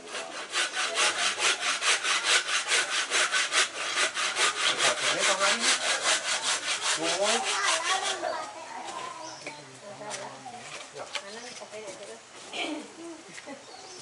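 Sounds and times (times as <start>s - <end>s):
handsaw cutting wood: 0.0s - 8.4s.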